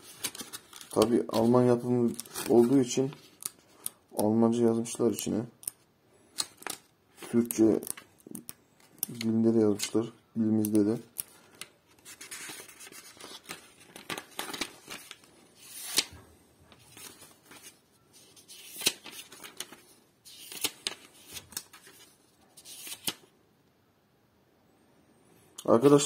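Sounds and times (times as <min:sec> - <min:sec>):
paper pages rustling: 0:00.0 - 0:03.9, 0:06.4 - 0:23.3.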